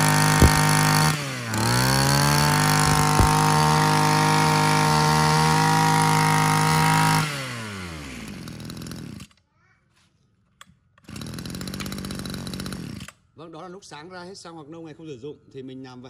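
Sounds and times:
two-stroke engine running: 0.0s - 7.2s.

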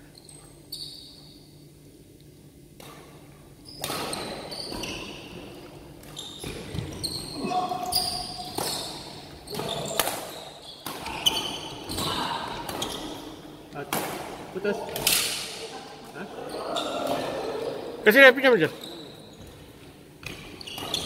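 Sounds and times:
shoes squeaking on court floor: 0.1s - 1.7s, 3.6s - 13.6s, 18.5s - 21.0s.

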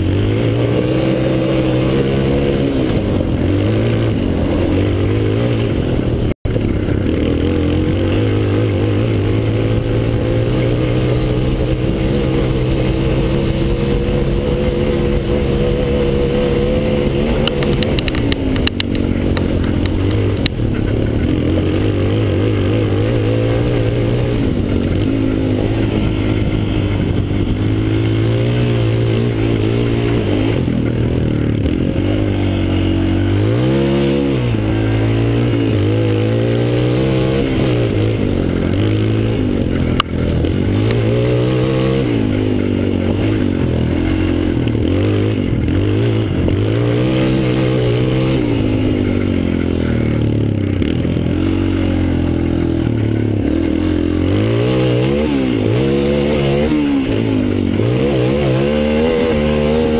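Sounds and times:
quad bike engine running: 0.0s - 59.9s
sharp rattling clicks: 17.2s - 21.2s.

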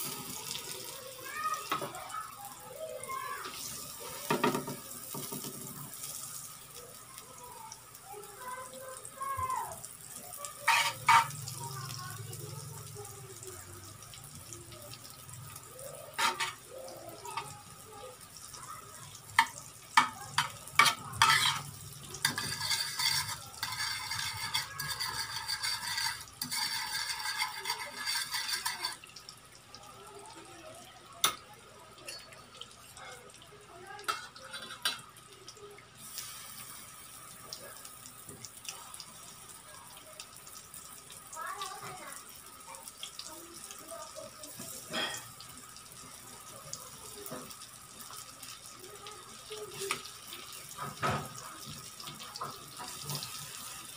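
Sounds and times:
butter sizzling: 0.0s - 53.9s
fork scraping a pan: 10.6s - 11.5s, 16.1s - 16.7s, 19.4s - 29.1s
fork clinking on a pan: 10.7s - 11.4s, 19.4s - 29.0s.

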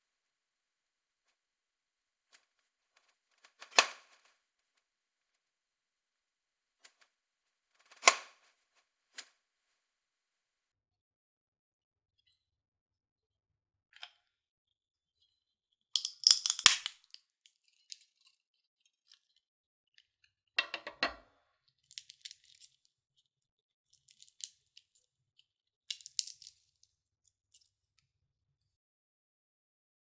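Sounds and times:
shell crackling and snapping: 16.0s - 18.1s, 21.9s - 22.9s, 24.0s - 25.1s, 25.9s - 26.9s
walnut shell cracking: 16.0s - 18.3s, 21.9s - 22.9s, 24.0s - 25.1s, 25.9s - 26.9s.

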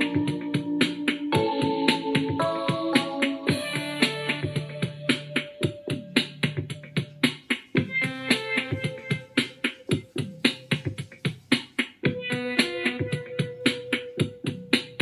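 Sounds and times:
melodic instrumental notes: 0.0s - 7.2s
sharp percussive beat: 0.0s - 15.0s.

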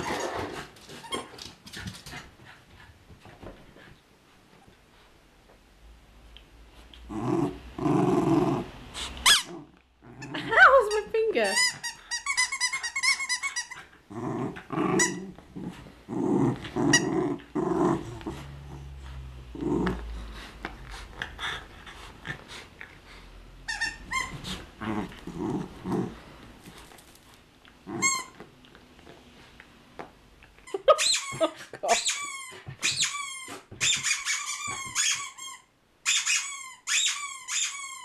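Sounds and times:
dog growling in play: 7.0s - 10.8s, 13.8s - 22.6s, 24.4s - 26.5s, 27.8s - 28.3s
squeaky rubber toy squeaking: 10.5s - 13.8s, 23.7s - 24.4s, 28.0s - 28.4s, 30.9s - 38.0s.

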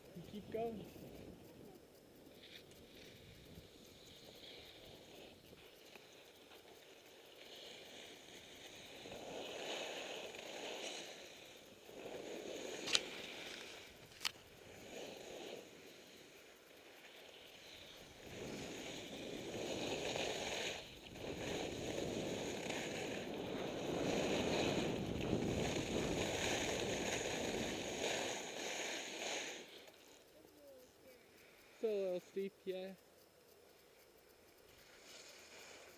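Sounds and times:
skis scraping on snow: 2.2s - 30.2s, 34.8s - 35.9s
wind over microphone: 23.2s - 28.0s.

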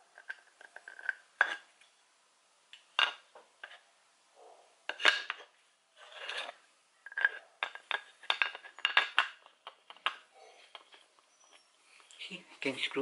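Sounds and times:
metal parts clinking: 6.0s - 11.0s.

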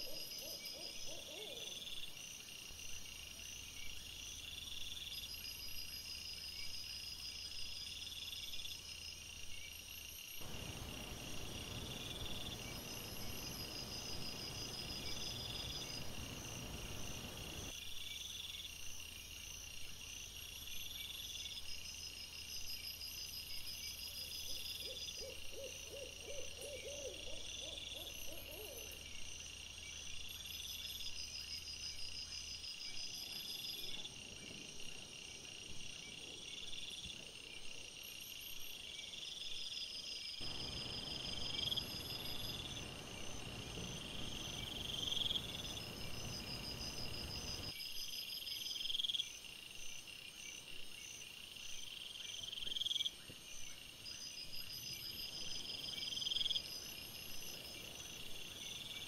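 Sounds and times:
insects trilling: 0.0s - 18.8s, 20.6s - 59.0s
insect rising call: 10.4s - 17.7s, 40.4s - 47.8s.

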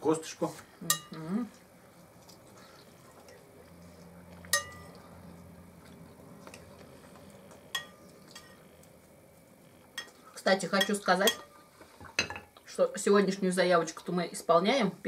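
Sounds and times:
metal spoon clinking on ceramic plate: 0.9s - 1.2s, 4.5s - 4.9s, 7.7s - 8.6s, 10.8s - 11.5s.

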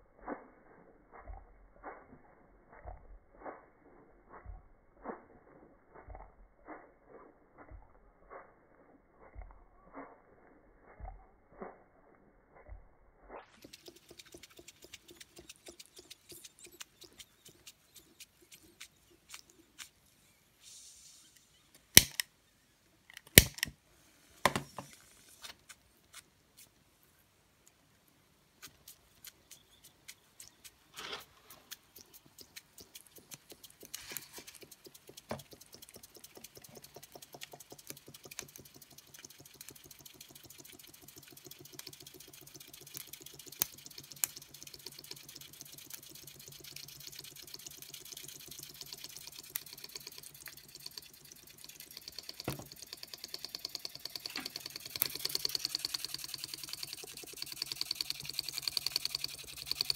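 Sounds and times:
high hiss: 20.6s - 21.6s
model steam engine ticking: 33.2s - 59.9s.

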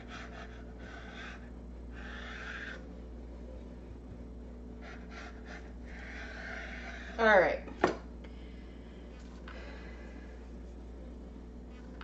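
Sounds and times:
steady low hum: 0.0s - 12.0s
knife scraping through dough: 4.8s - 7.4s.

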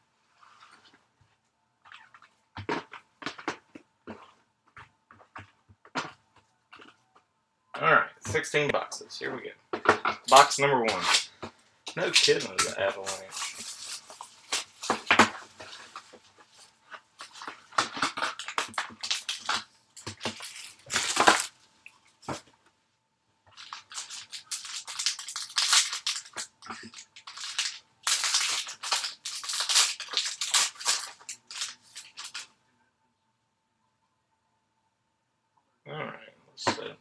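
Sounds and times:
foil wrapper crinkling and ripping: 12.0s - 16.2s, 17.2s - 21.6s, 23.5s - 32.5s.

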